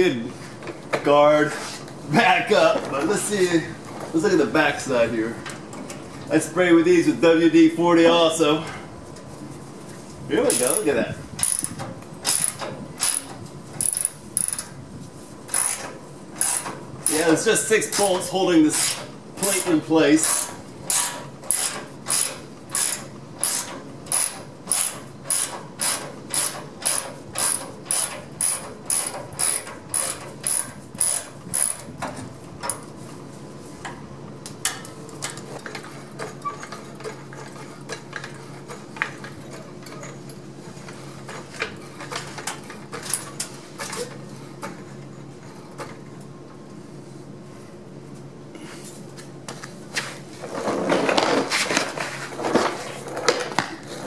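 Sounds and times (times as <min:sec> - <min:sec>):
hand ratchet clicking: 0:15.5 - 0:17.2, 0:20.2 - 0:31.9.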